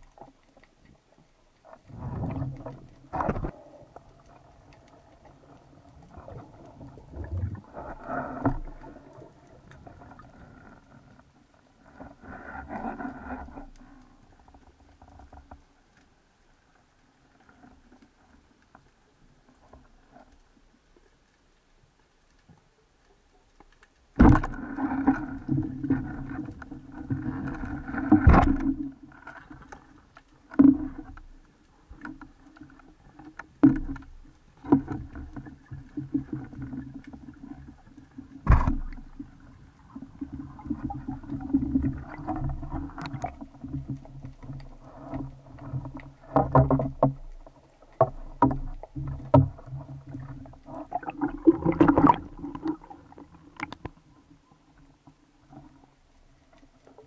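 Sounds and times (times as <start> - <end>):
underwater knocks and clicks: 0.0 - 11.1, 22.3 - 54.0.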